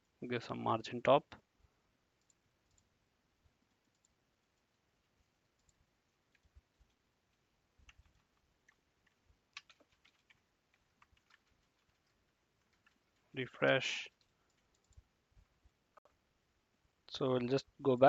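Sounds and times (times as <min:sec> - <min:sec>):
computer keyboard typing: 0:02.2 - 0:02.9, 0:03.7 - 0:04.8, 0:05.4 - 0:07.0, 0:07.8 - 0:13.2, 0:14.1 - 0:15.1.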